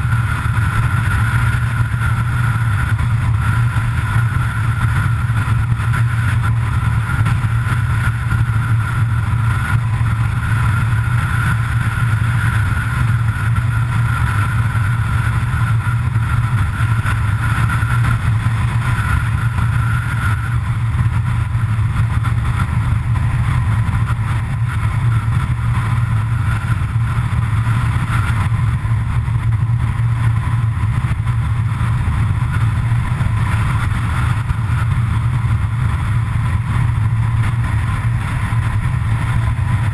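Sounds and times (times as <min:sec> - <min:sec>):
tyre and road rush: 0:00.0 - 0:39.9
vehicle engine drone: 0:00.0 - 0:39.9.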